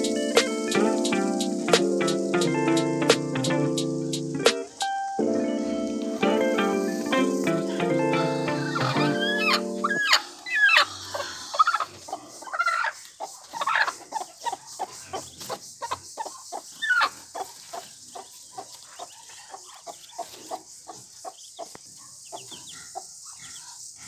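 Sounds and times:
hen clucking: 0:06.8 - 0:23.8.

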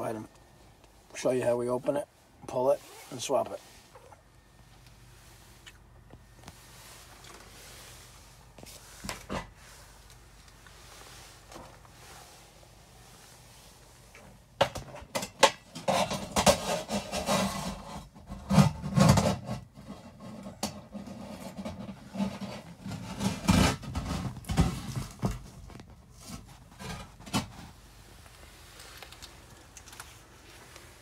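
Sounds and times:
sheet metal rubbing and scraping: 0:15.8 - 0:25.1.

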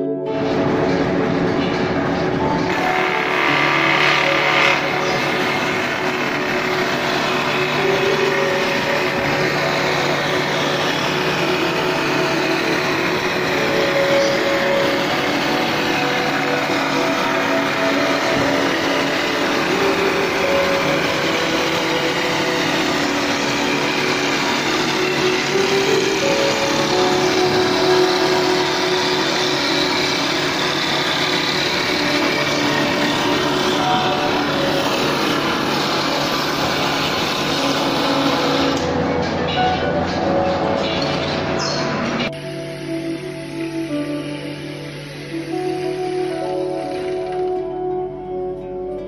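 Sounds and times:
wood-rounding machine cutting: 0:00.0 - 0:47.8.

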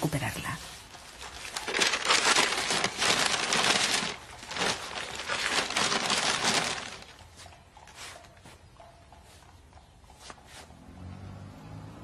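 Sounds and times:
paper wrapping crinkling: 0:00.4 - 0:08.2.

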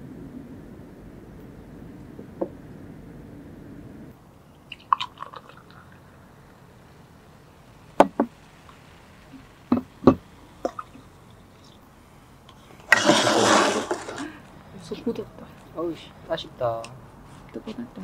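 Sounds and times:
cola pouring into glasses: 0:04.7 - 0:11.4, 0:12.7 - 0:14.5.

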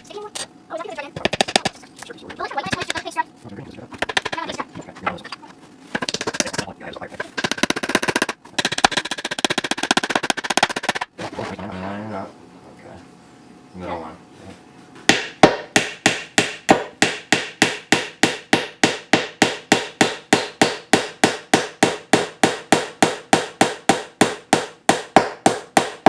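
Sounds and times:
hammer striking nail into wood: 0:07.4 - 0:11.1, 0:15.1 - 0:26.0.

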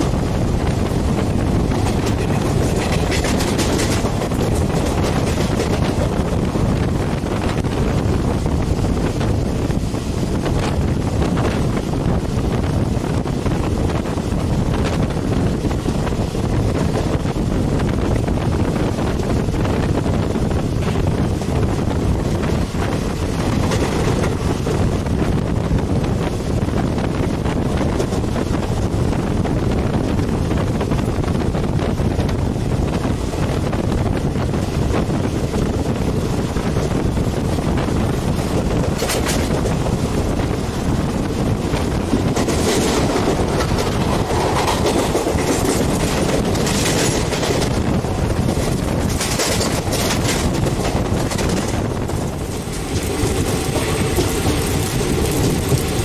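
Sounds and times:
train rattling: 0:00.0 - 0:56.0
train wheels rumbling on rails: 0:00.0 - 0:56.0.

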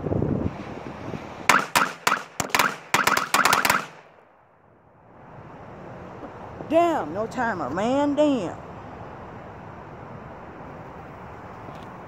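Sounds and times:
firecrackers popping: 0:01.5 - 0:04.0.

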